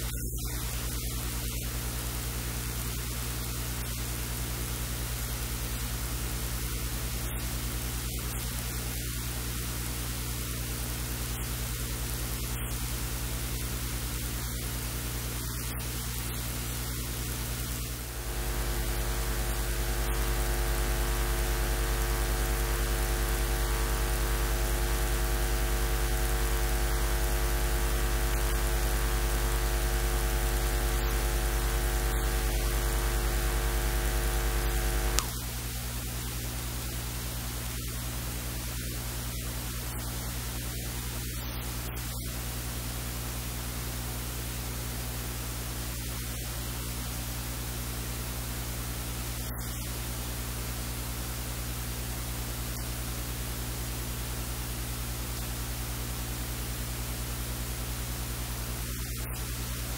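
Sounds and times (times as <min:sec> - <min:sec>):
electrical mains hum: 0:00.0 - 0:42.3
static hiss: 0:00.0 - 0:59.9.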